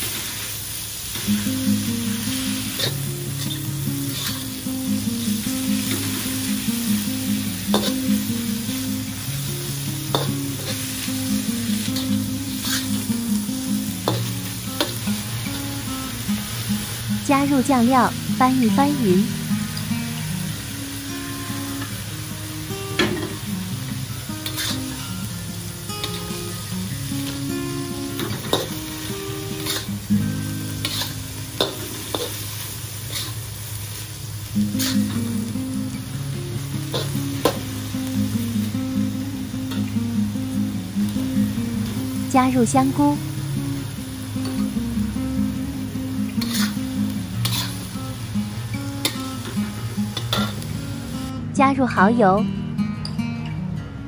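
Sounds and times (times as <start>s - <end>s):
food sizzling in hot oil: 0.0s - 51.3s
spatula scraping a wok: 2.7s - 4.5s, 11.8s - 13.1s, 24.4s - 25.0s, 28.2s - 30.0s, 30.7s - 33.5s, 34.6s - 35.2s, 46.4s - 47.9s
spatula stirring and tossing: 30.8s - 32.4s, 33.0s - 33.4s, 34.8s - 35.2s, 46.4s - 46.8s, 47.4s - 47.8s.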